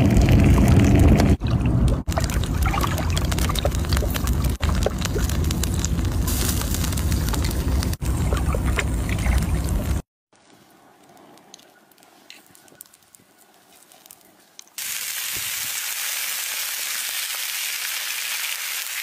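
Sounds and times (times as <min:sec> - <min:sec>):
steady low rumble: 0:00.0 - 0:10.0
juices sizzling on hot stone: 0:02.1 - 0:08.0, 0:14.8 - 0:19.0.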